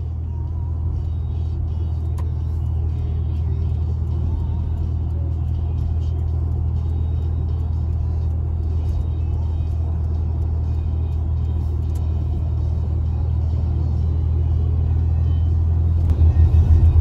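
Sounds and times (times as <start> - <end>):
car cabin engine and road rumble: 0.0 - 17.0.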